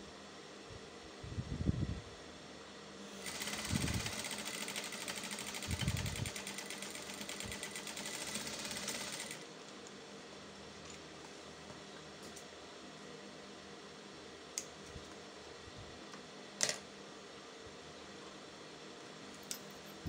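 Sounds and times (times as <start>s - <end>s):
sewing machine stitching: 3.2s - 9.4s.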